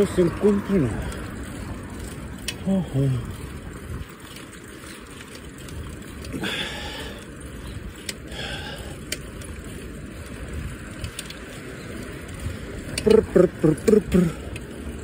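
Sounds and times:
bicycle tyres rolling on asphalt: 0:00.0 - 0:15.0
wind rumble: 0:03.2 - 0:13.4.

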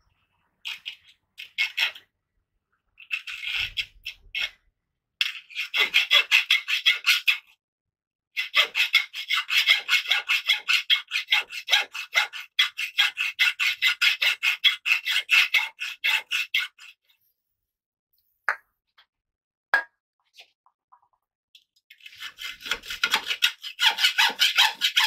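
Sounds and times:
hacksaw cutting metal: 0:08.4 - 0:16.9, 0:22.0 - 0:25.0.

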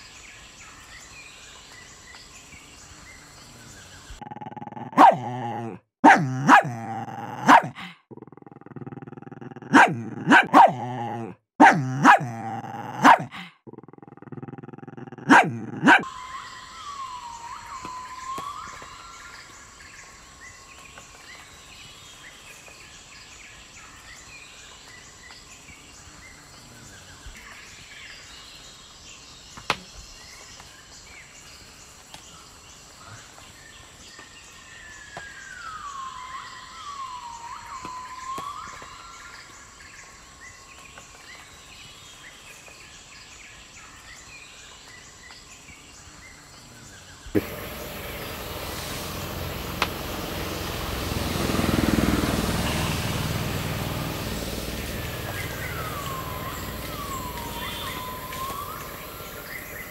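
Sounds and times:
small dog yapping: 0:04.8 - 0:07.8, 0:09.6 - 0:13.3, 0:15.2 - 0:16.1.

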